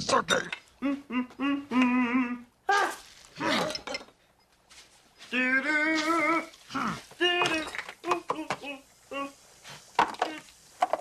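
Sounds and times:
man humming a tune: 0:00.8 - 0:02.5, 0:07.2 - 0:09.4.

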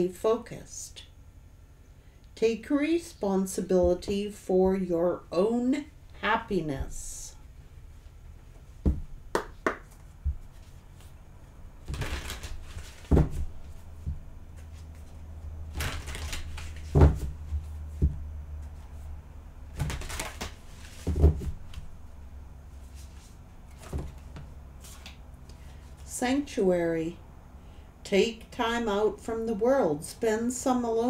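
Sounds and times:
cards being shuffled: 0:11.8 - 0:19.0, 0:19.7 - 0:21.9, 0:22.9 - 0:25.2.

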